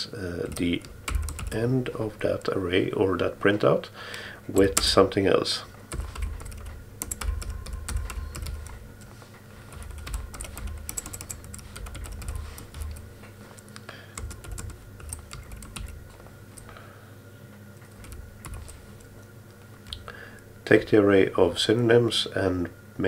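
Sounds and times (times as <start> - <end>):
keyboard typing clicks: 0.4 - 1.6, 5.9 - 9.1, 9.7 - 16.0, 17.8 - 19.2.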